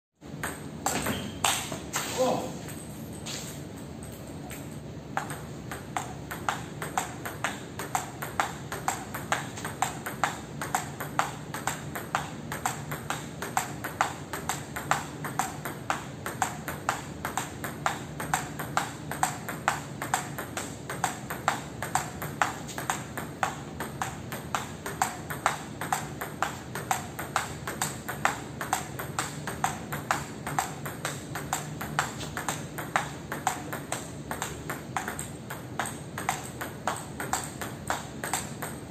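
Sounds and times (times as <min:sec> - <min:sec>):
table tennis ball clicking: 0:04.0 - 0:38.9.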